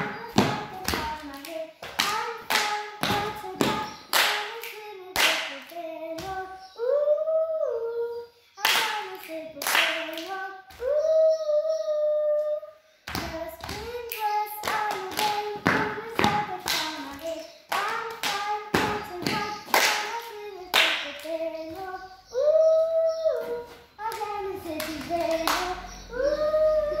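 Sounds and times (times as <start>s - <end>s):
hand claps and body slaps: 0.0s - 6.4s, 8.6s - 10.9s, 13.1s - 21.9s, 23.4s - 25.8s
person singing: 0.0s - 27.0s.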